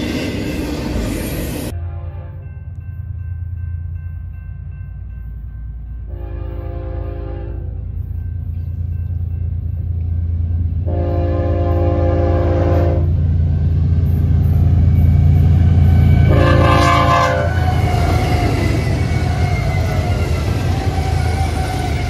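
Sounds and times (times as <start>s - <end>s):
wheels hissing on rails: 0.0s - 1.7s, 17.4s - 22.0s
diesel locomotive engines rumbling: 0.0s - 22.0s
train air horn: 1.7s - 2.5s, 6.1s - 7.9s, 10.8s - 13.2s, 15.7s - 20.0s.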